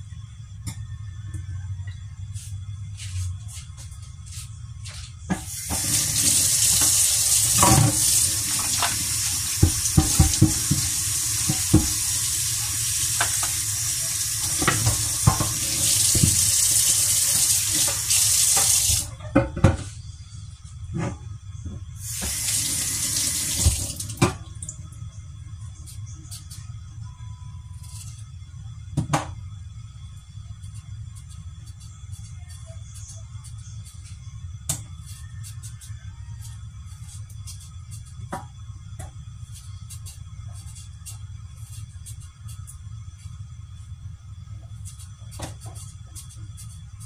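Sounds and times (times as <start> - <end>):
tap running into metal sink: 5.7 - 12.0, 14.4 - 16.5.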